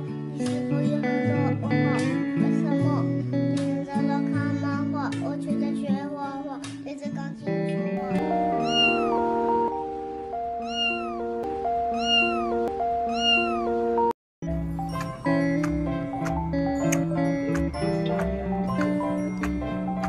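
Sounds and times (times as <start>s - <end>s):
light background music: 0.0s - 20.0s
kitten mewing: 8.0s - 9.2s, 10.6s - 11.3s, 11.9s - 13.7s.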